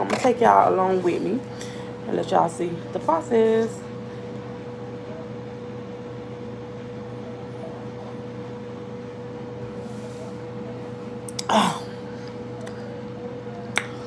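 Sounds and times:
steady low hum: 0:00.0 - 0:14.0
woman gasping groan: 0:11.4 - 0:12.0.

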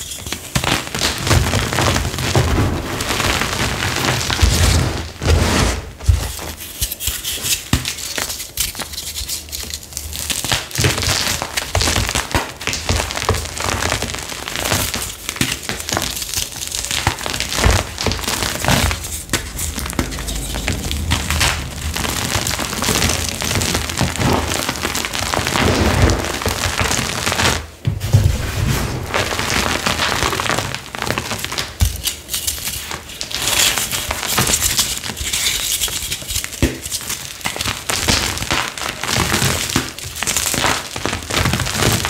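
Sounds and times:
chalk crunching and crackling: 0:00.0 - 0:27.1.

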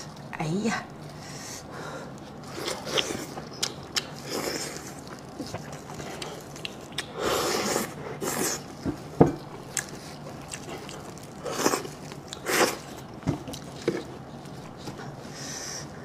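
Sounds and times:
noisy mouth eating sounds: 0:02.2 - 0:08.8.

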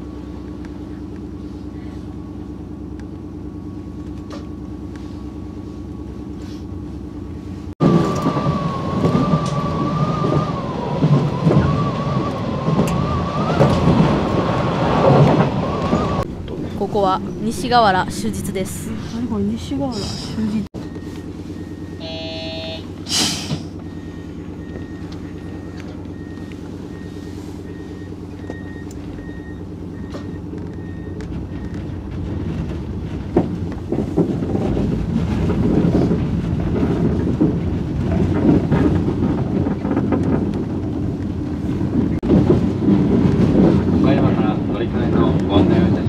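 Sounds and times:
train motor humming: 0:00.0 - 0:42.2
train wheels on track: 0:07.8 - 0:20.7, 0:28.4 - 0:46.0
short tone: 0:20.8 - 0:23.2
air hiss: 0:23.0 - 0:23.7.

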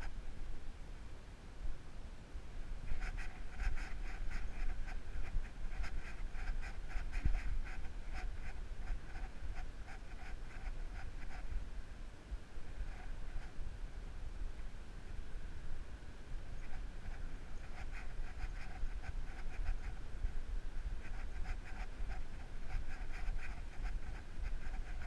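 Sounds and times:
wind rumble on microphone: 0:01.5 - 0:25.0
dog making scratchy sounds: 0:02.9 - 0:11.5, 0:16.6 - 0:20.0, 0:21.0 - 0:25.0.

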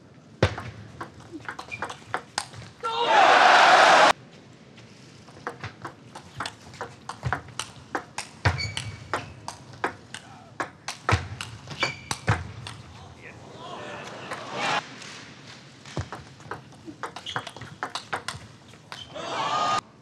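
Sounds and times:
footwork thumps and squeaks: 0:00.4 - 0:02.8, 0:05.3 - 0:10.0, 0:11.1 - 0:12.8, 0:16.0 - 0:19.1
table tennis ball clicking: 0:00.6 - 0:02.6, 0:05.3 - 0:12.8, 0:16.0 - 0:19.1.

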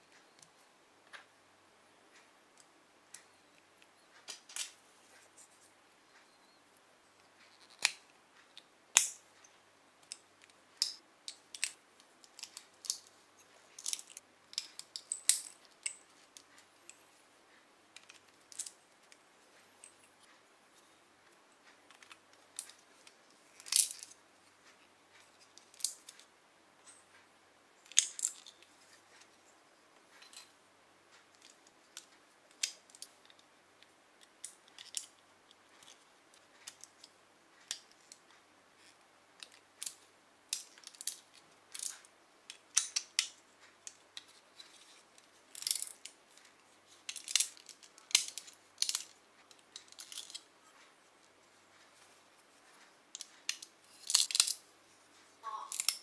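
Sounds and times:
plastic bricks clicking together: 0:27.8 - 0:28.6, 0:38.8 - 0:46.4, 0:47.0 - 0:50.5, 0:53.1 - 0:54.6, 0:55.5 - 0:56.0.

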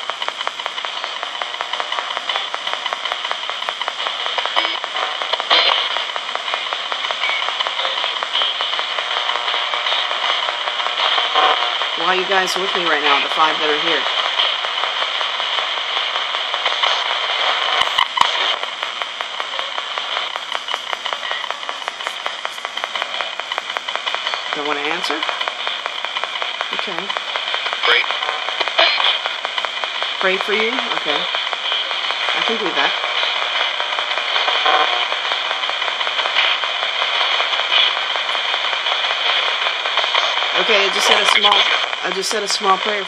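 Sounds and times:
loud radio pops: 0:00.0 - 0:43.0
radio static with rapid clicks: 0:00.0 - 0:43.0.

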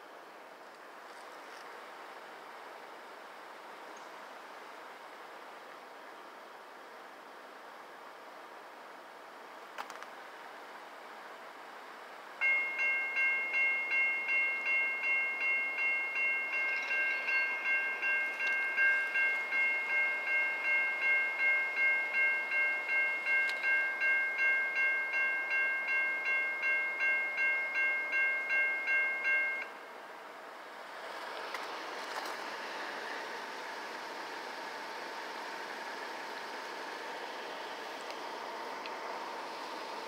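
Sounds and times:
railroad crossing bell ringing: 0:12.4 - 0:30.0
train rushing rumble: 0:29.8 - 0:40.0.

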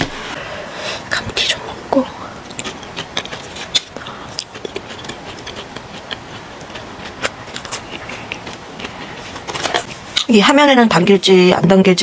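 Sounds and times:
chewing crisp fries: 0:02.4 - 0:09.9.

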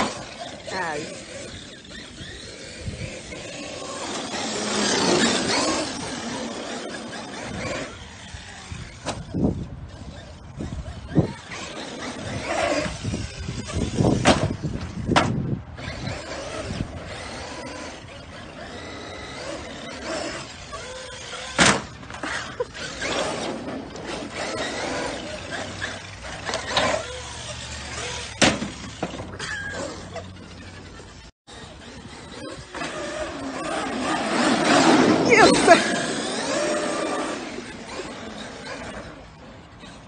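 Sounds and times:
rc truck motor and tyres: 0:00.0 - 0:40.0.

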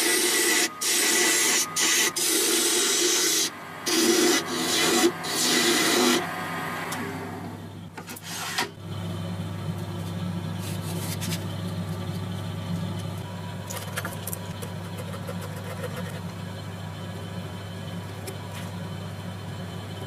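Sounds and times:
abrasive rubbing and scraping: 0:00.0 - 0:06.3
low motor hum: 0:00.0 - 0:20.0.

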